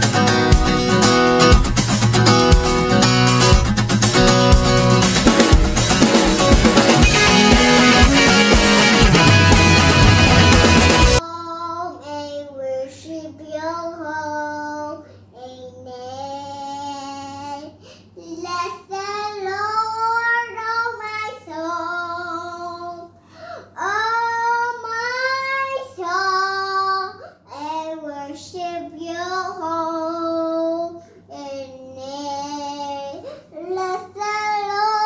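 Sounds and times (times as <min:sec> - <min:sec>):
child singing: 0:11.2 - 0:23.2, 0:23.8 - 0:35.0.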